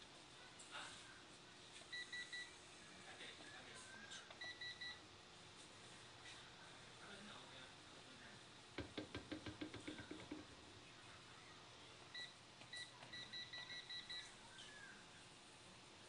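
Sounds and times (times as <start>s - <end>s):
control panel beeps: 4.4s - 5.0s, 12.2s - 14.3s.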